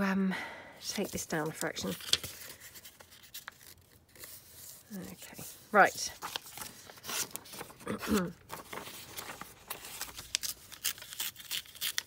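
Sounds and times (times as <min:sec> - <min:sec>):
paper rustling and crinkling: 0:00.9 - 0:12.0.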